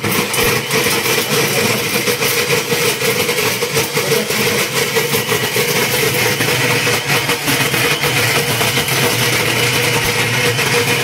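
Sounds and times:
mixer grinder motor running: 0.0 - 11.0.

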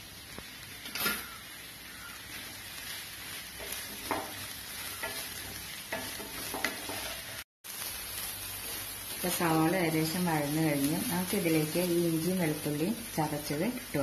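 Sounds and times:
onions sizzling in a frying pan: 0.0 - 14.0
spatula scraping a pan: 2.1 - 7.4.

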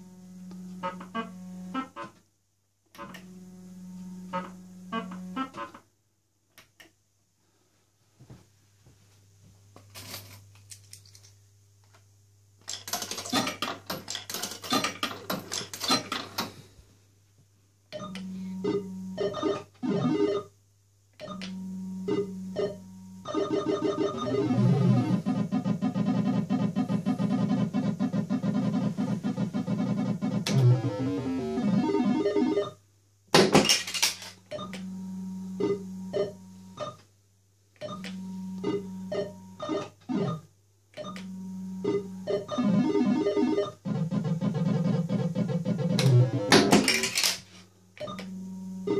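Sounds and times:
steady low hum: 0.0 - 5.5, 16.3 - 33.3, 34.2 - 47.0, 47.7 - 48.9
chirpy electronic notes: 0.7 - 2.1, 21.6 - 32.7, 41.5 - 46.7
fruit machine synthesizer tune: 21.2 - 32.8, 37.9 - 46.7
slot machine reels spinning: 42.3 - 47.4.

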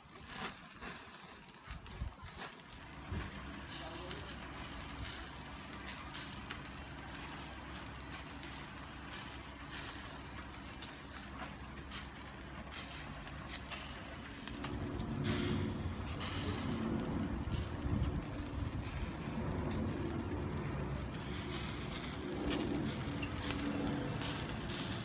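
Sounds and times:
charcoal fire crackling: 0.0 - 25.0.

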